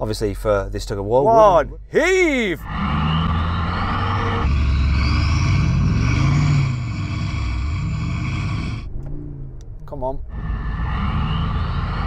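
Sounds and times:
engines revving hard: 2.4s - 9.2s, 10.3s - 12.0s.

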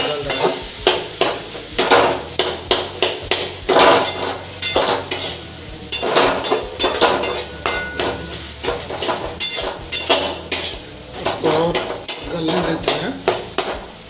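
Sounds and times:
metal spatula scraping a pot: 3.6s - 13.8s.

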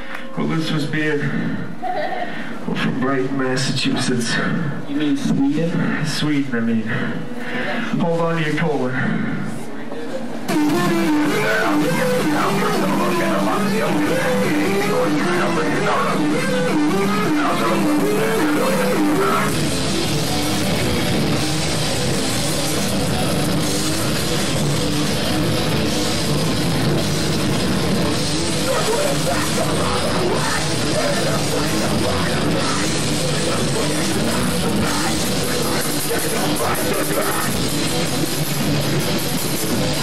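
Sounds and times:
drums: 10.4s - 40.0s
electric guitar riff: 10.5s - 40.0s.

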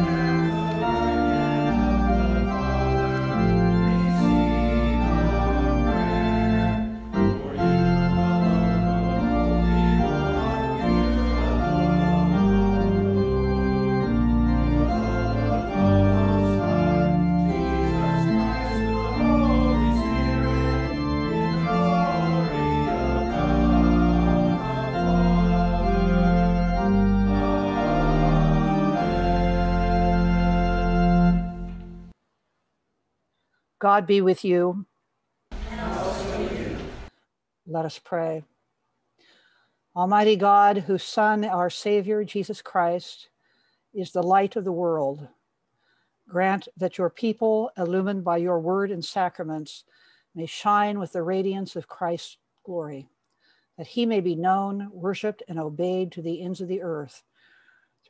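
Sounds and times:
organ playing held chords: 0.0s - 32.1s.

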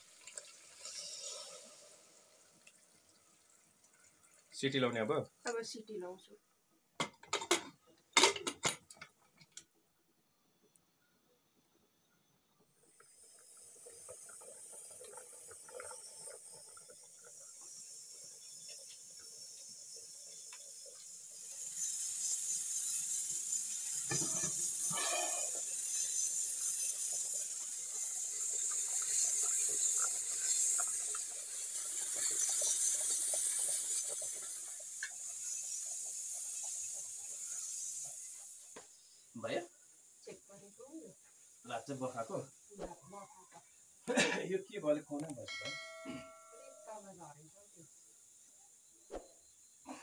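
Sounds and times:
pressure cooker hissing: 0.0s - 6.1s, 12.0s - 50.0s
metal lid clattering: 7.0s - 8.8s.

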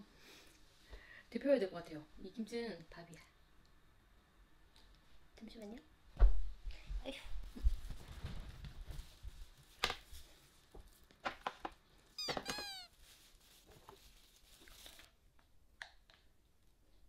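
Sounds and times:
cat meowing: 12.2s - 13.0s.

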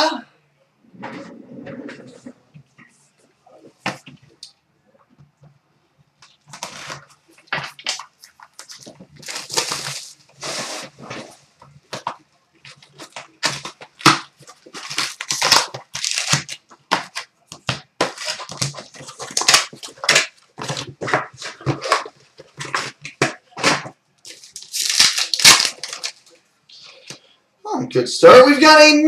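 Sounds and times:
wrapper ripped and crinkled: 7.6s - 11.0s, 12.9s - 16.7s, 24.3s - 26.3s
cardboard box torn open: 8.6s - 11.2s, 12.9s - 17.2s, 23.6s - 26.2s.

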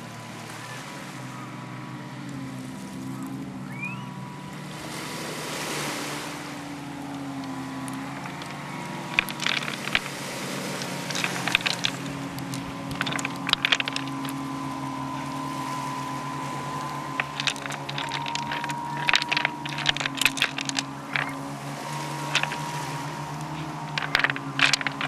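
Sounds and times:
surf on a pebble beach: 0.0s - 25.0s
sharp clicks and knocks: 8.2s - 25.0s.

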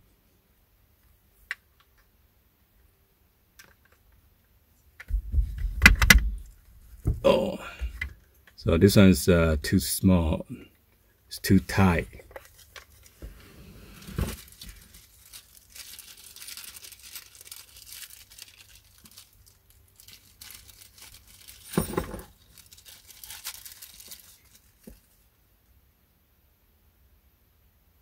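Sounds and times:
crinkling rustles: 11.5s - 25.3s.

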